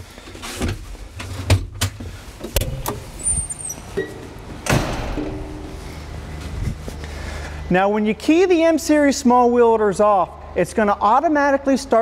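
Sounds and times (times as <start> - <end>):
cab door opening: 2.5 - 5.7
low steady rumble: 2.6 - 10.8
heavy thump: 4.6 - 5.8.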